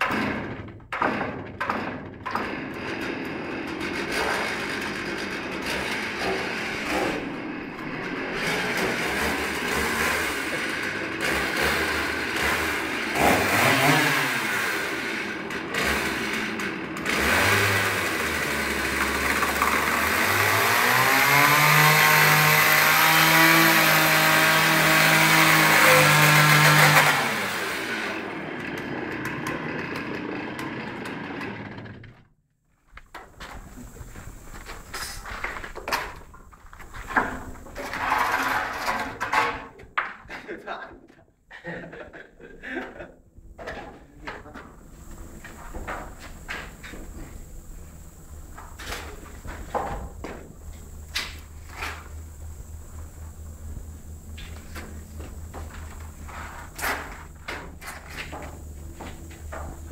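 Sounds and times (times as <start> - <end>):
chainsaw revving: 2.4 - 32.3, 37.8 - 39.3.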